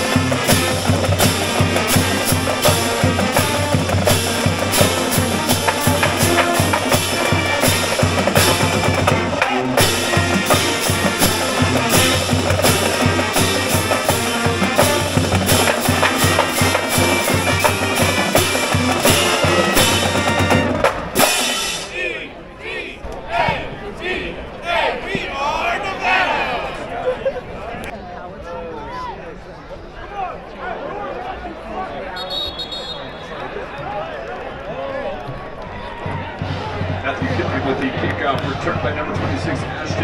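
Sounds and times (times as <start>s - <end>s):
drums and cymbals: 0.0s - 22.2s, 36.0s - 40.0s
brass: 0.0s - 26.6s.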